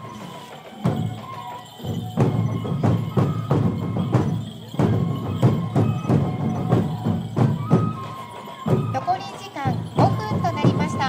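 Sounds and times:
drums in brisk rhythm: 0.0 - 11.0.

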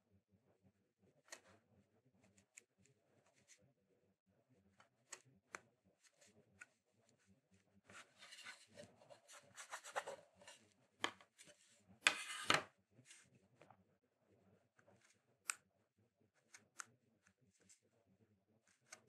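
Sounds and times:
wooden block scraping on surface: 7.9 - 13.2.

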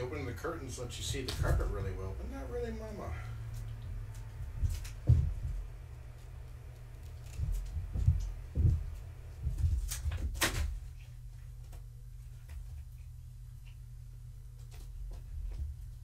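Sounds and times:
steady low hum: 0.0 - 16.0
cat paws thumping: 4.5 - 5.8, 7.3 - 10.9.

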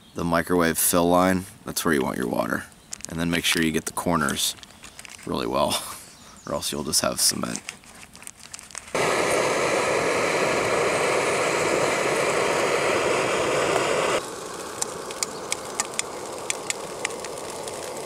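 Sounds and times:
stove burner roaring: 8.9 - 18.0.

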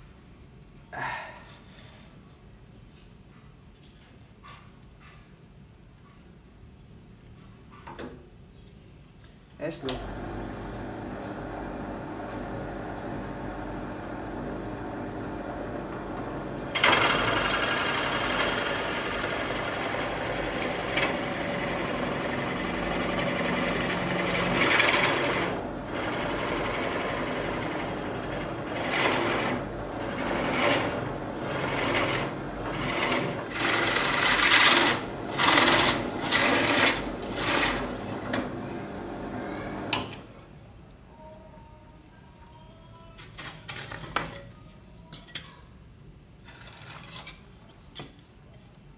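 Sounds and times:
drill press running: 10.0 - 40.2
drill bit cutting wood: 16.8 - 38.0.

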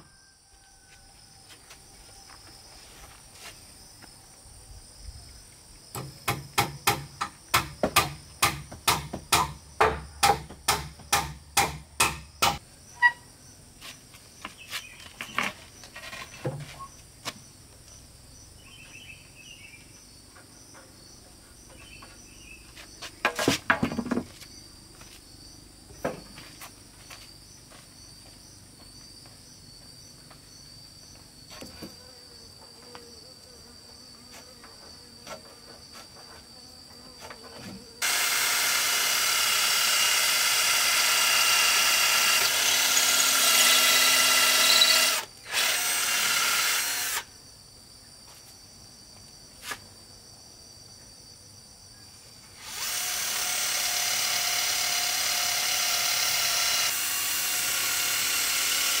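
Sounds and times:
insects chirring: 0.0 - 59.0
hammer driving nails into wood: 6.0 - 12.6.

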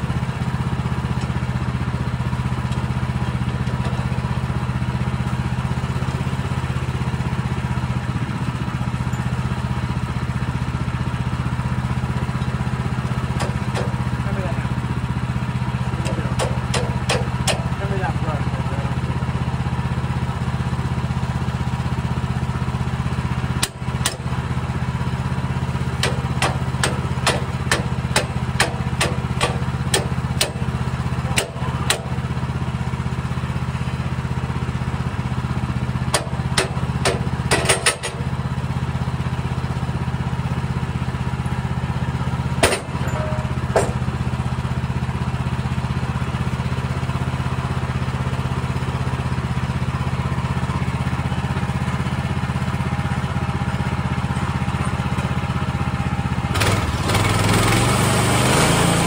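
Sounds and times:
sawmill engine idling: 0.0 - 59.0
sharp clicks and knocks: 12.4 - 14.0, 16.0 - 17.7, 26.0 - 30.6, 36.1 - 38.3, 42.6 - 44.2.

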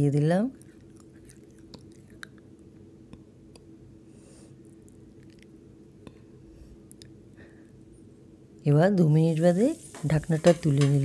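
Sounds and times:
steady low hum: 0.0 - 11.0
food popping and crackling in pan: 9.6 - 11.0.

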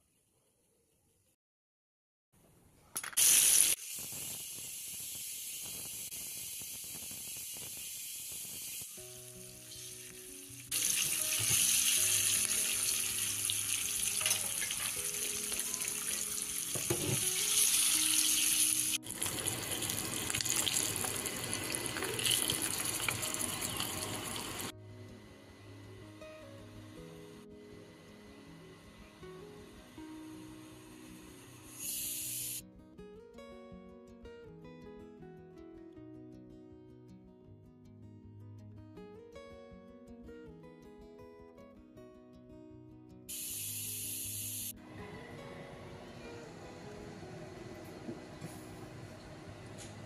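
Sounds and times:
oil sizzling in a frying pan: 3.2 - 24.7, 43.3 - 44.8
soft background music: 8.9 - 50.0.

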